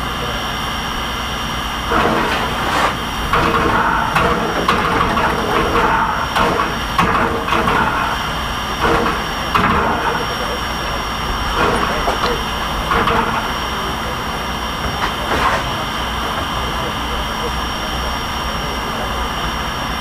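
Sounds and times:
steam locomotive hissing: 0.0 - 20.0
pulsing mechanical strokes: 1.6 - 20.0.

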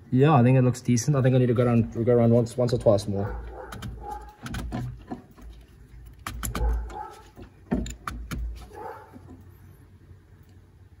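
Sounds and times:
fuel filter clicks and knocks: 3.4 - 9.4.

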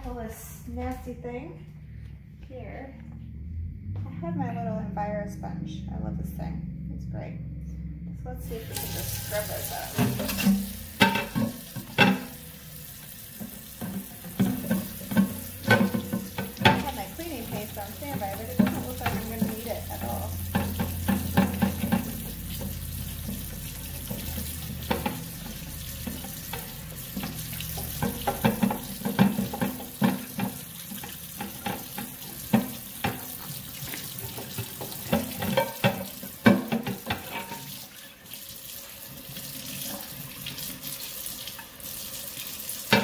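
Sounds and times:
tap water running into sink: 8.5 - 43.0
sponge scrubbing glass plate: 8.7 - 12.4, 13.4 - 37.9.

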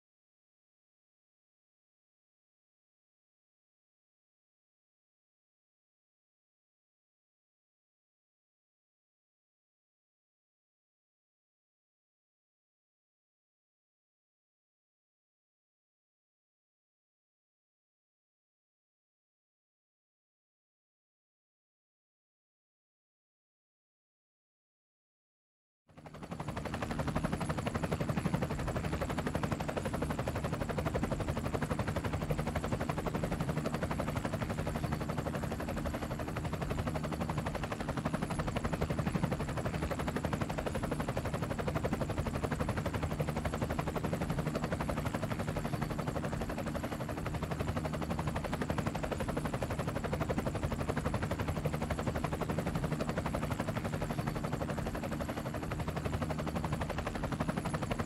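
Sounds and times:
helicopter engine drone: 25.9 - 58.0
helicopter rotor chopping: 26.0 - 58.0.

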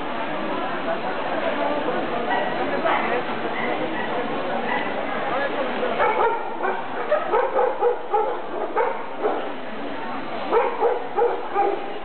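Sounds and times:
background hubbub of hall: 0.0 - 12.0
dog barking and yipping: 6.0 - 9.4, 10.5 - 11.9.

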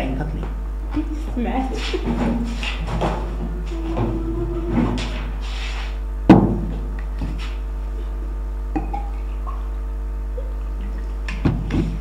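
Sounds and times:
low electrical hum: 0.0 - 12.0
sharp knock: 6.3 - 6.7.

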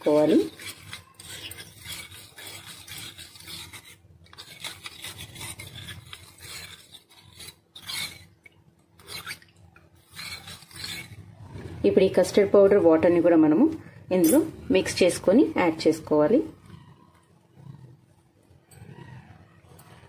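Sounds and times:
metal spoon scraping a steel bowl: 0.0 - 13.1.

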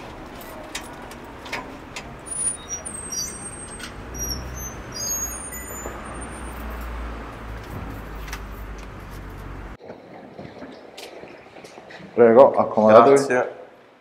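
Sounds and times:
motor vehicle rumble: 0.0 - 9.9.

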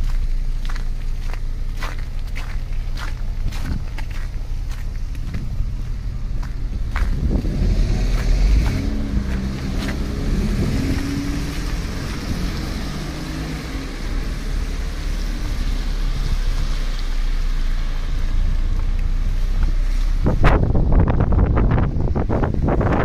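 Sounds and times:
cars driving past: 0.0 - 23.0
low rumble: 0.0 - 23.0
tyres hissing on wet road: 5.6 - 23.0.

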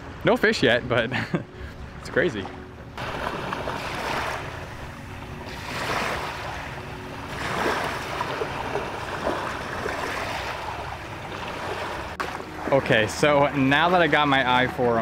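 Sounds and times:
small waves lapping on pebbles: 5.5 - 6.7, 7.3 - 14.4.

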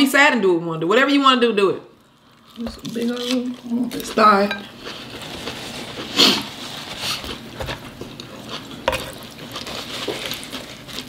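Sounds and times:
person chewing: 2.0 - 11.0.

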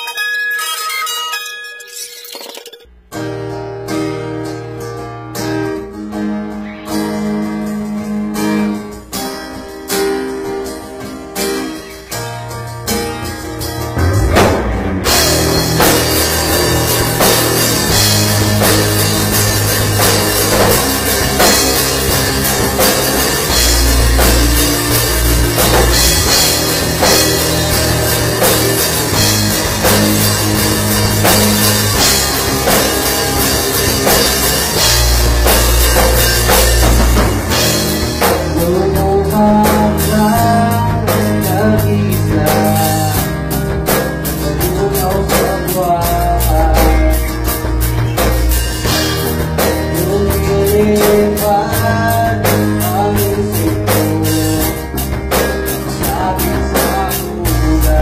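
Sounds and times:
higher melody: 0.0 - 41.7
rock music: 0.0 - 58.0
drum kit: 2.2 - 58.0
heavy bass line: 6.6 - 58.0.

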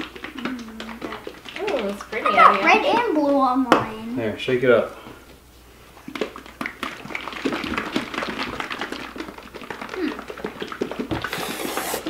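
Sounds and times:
batter sloshing in squeeze bottles: 0.0 - 3.6, 6.0 - 12.0.

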